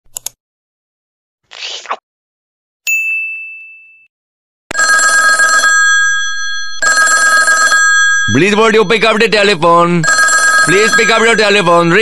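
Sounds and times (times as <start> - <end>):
single ding: 2.9 - 4.1
telephone ringing loudly: 4.7 - 12.0.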